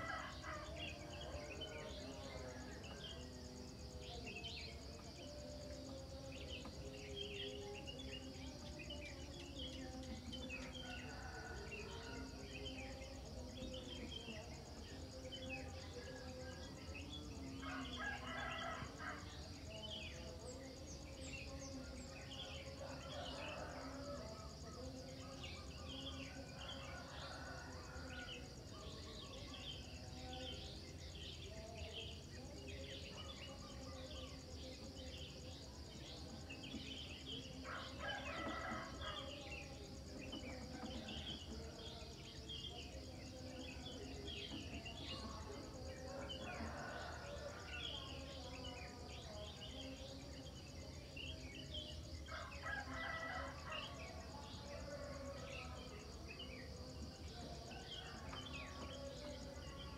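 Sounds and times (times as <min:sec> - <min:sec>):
rooster crowing: 0:52.3 - 0:54.0.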